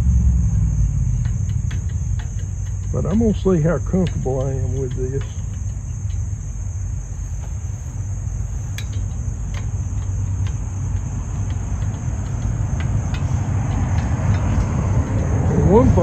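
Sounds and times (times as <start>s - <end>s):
crickets chirping: 0.0s - 16.0s
hand tool clicking on metal: 7.3s - 10.6s.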